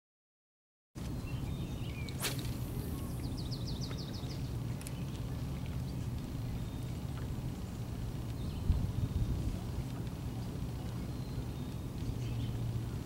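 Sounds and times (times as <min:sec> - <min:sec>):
low rumble of outdoor noise: 0:01.0 - 0:13.0
fishing rod swish: 0:02.1 - 0:03.1.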